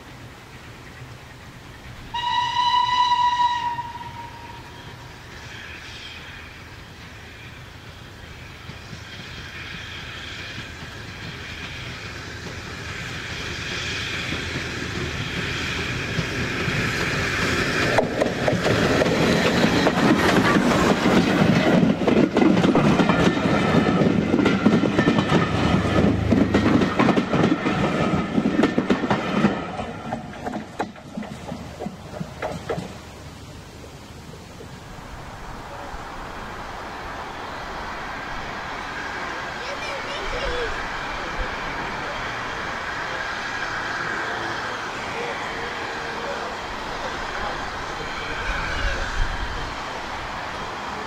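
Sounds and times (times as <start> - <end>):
steam locomotive hauling coaches: 0.0 - 51.0
coach wheels clicking over rail joints: 6.8 - 33.2.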